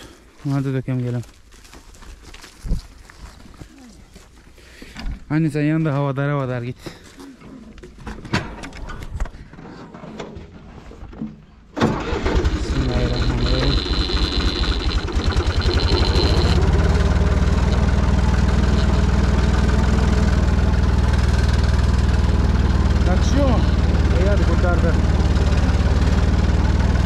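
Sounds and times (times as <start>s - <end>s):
tractor diesel engine: 11.8s - 27.0s
high engine whine: 12.0s - 27.0s.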